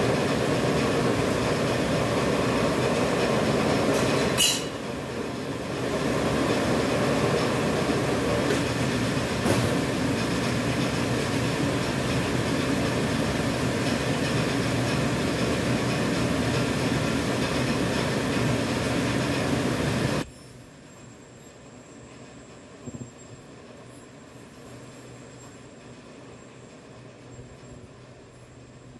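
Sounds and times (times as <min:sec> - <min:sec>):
high thin machine whine: 0:20.2 - 0:28.9.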